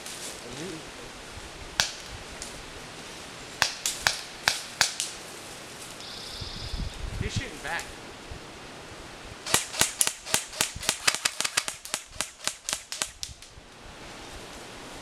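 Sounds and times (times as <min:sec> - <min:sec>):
airsoft gun firing rapid shots: 0:09.5 - 0:13.2.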